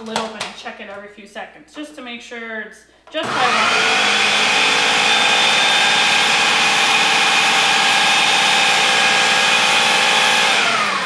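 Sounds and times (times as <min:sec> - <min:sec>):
blender motor whirring: 0:03.2 - 0:11.0.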